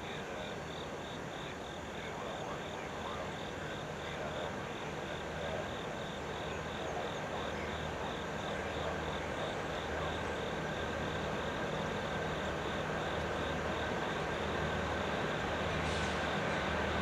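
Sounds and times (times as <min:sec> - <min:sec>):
distant diesel locomotive hum: 0:00.0 - 0:17.0.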